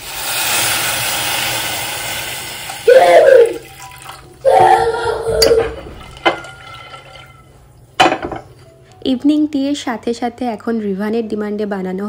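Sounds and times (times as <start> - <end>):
water pouring into a pan: 0.0 - 4.4, 6.0 - 7.6.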